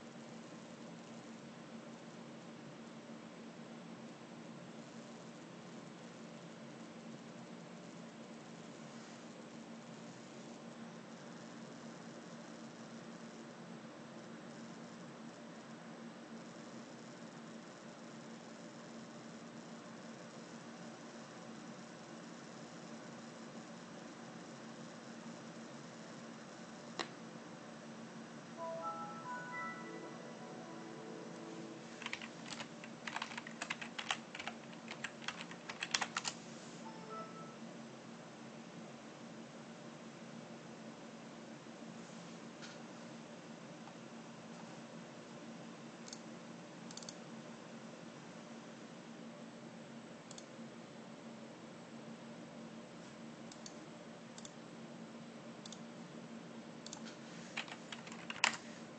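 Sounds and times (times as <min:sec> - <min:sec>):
keyboard typing: 0:28.8 - 0:37.6, 0:57.6 - 0:58.6.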